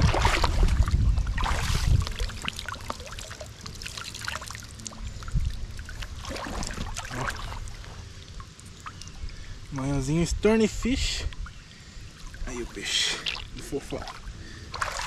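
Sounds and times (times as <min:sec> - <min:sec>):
water splashing and trickling: 0:00.0 - 0:15.0.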